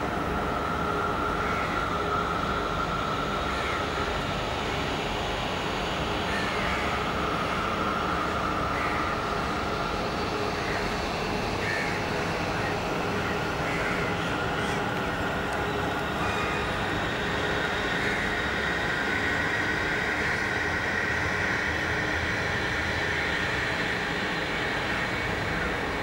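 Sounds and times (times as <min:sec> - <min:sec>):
steady rumbling with hiss: 0:00.0 - 0:26.0.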